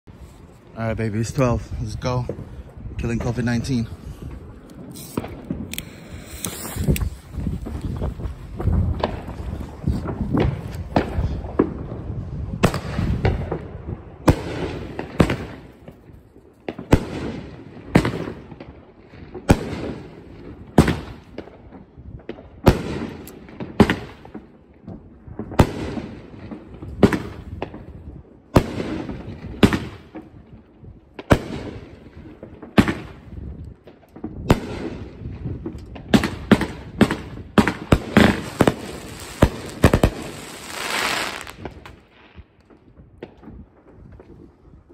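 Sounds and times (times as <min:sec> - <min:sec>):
firework shells banging: 0:36.6 - 0:42.0.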